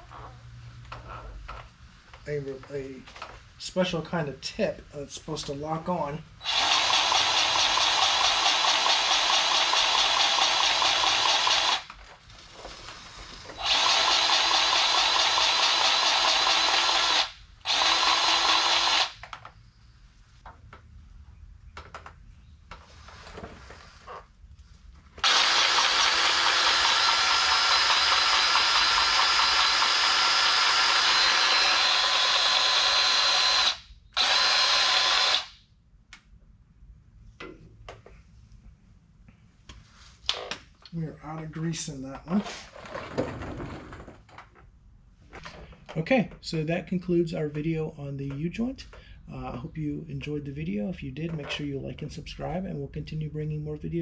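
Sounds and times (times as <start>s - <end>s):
grease gun motor running: 6.4s - 11.9s, 13.6s - 19.2s, 25.2s - 35.5s.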